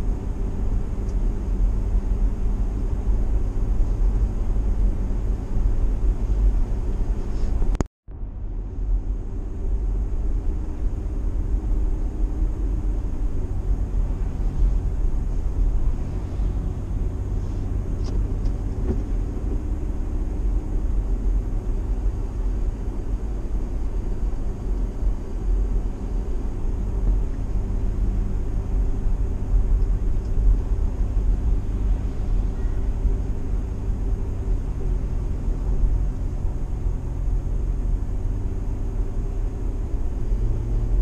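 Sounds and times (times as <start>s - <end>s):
road noise: 0.0s - 41.0s
vehicle engine rumble: 0.0s - 41.0s.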